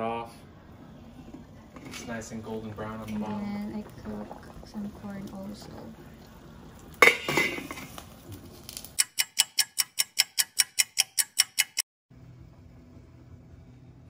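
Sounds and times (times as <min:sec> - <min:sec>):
pot lid clanking on pot: 0:07.0 - 0:08.0
clock ticking: 0:09.0 - 0:11.8.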